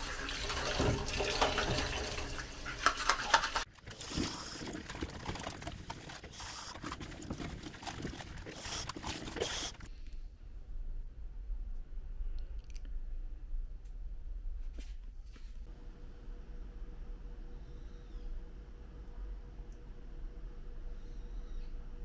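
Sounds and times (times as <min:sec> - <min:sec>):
water running and trickling: 0:00.0 - 0:09.8.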